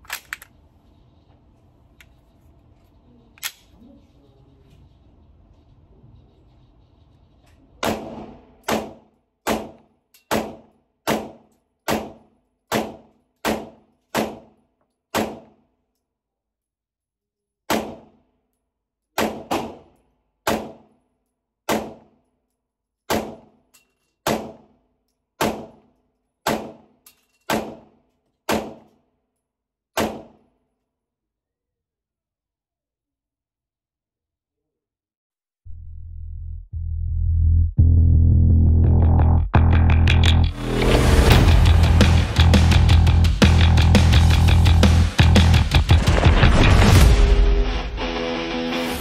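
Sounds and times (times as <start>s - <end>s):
pistol shots: 7.8s - 14.5s, 19.2s - 20.9s.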